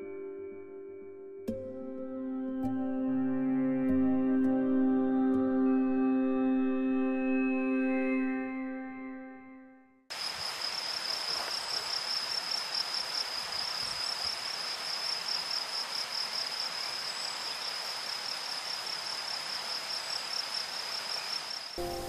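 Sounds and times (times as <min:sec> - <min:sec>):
music: 0:00.0 - 0:10.1, 0:21.8 - 0:22.0
cricket chirping: 0:10.1 - 0:22.0
outdoor hiss: 0:10.1 - 0:22.0.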